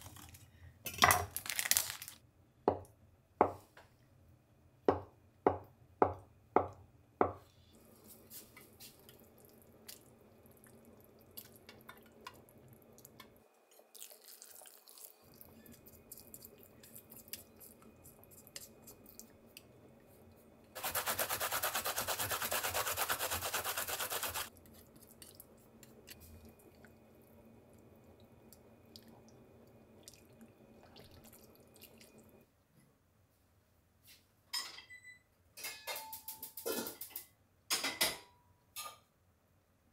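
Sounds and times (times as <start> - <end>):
kitchen clatter: 35.6 - 39.1.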